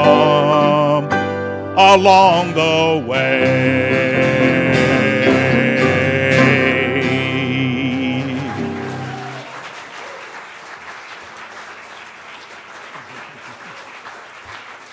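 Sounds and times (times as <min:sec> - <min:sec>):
acoustic guitar chord ringing: 0:01.8 - 0:08.8
audience applauding: 0:07.5 - 0:14.9.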